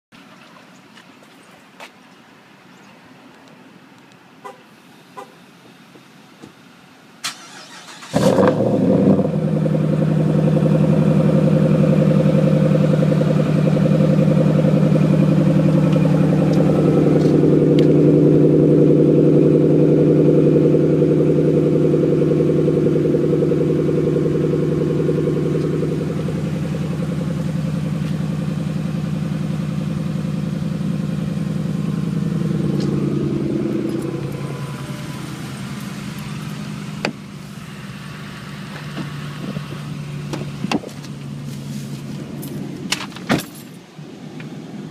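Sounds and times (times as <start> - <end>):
engine starting: 7.2 - 8.8
engine idling loudly: 9.3 - 39.5.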